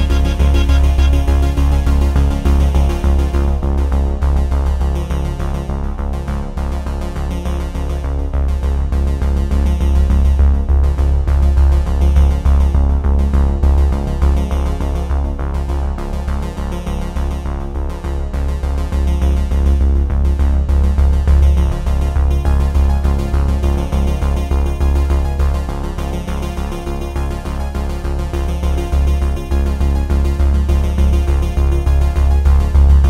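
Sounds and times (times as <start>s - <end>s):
music with heavy bass beat: 0.0s - 4.1s, 28.8s - 33.0s.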